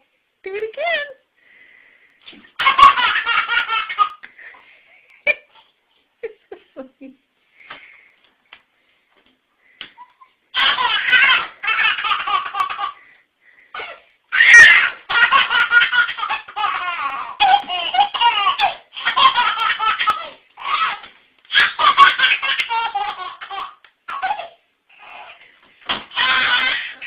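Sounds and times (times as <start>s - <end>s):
baby laughing: 2.5s - 4.5s, 10.0s - 13.1s, 13.7s - 25.4s, 26.1s - 27.0s.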